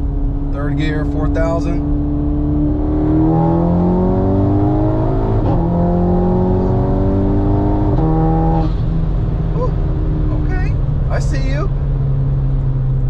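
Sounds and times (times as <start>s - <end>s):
car engine at full throttle: 0.0s - 13.0s.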